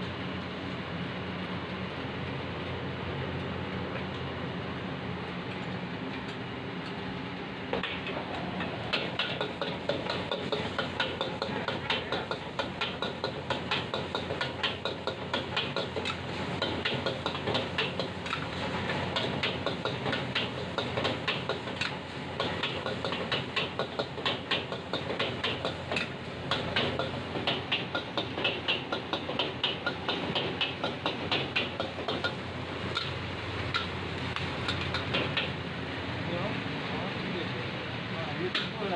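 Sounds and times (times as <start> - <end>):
metal utensils clanking on wok: 7.8 - 35.6.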